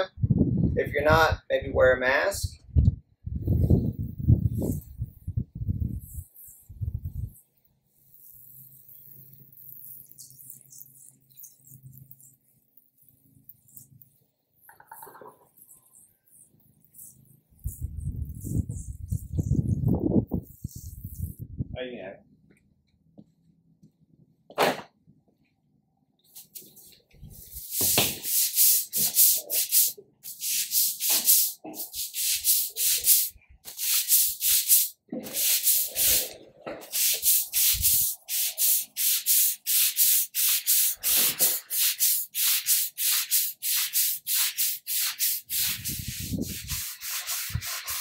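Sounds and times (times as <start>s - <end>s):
push broom scrubbing concrete: 26.4s - 48.0s.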